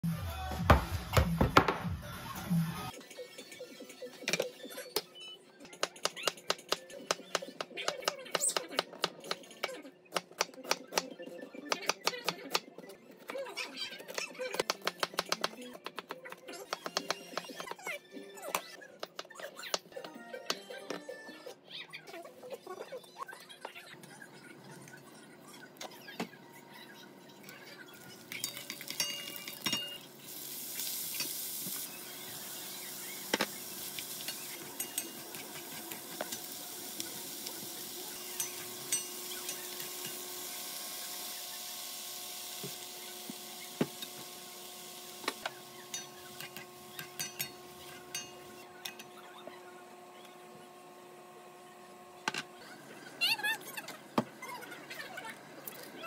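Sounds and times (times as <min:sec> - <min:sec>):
food sizzling in a frying pan: 0:28.0 - 0:48.5.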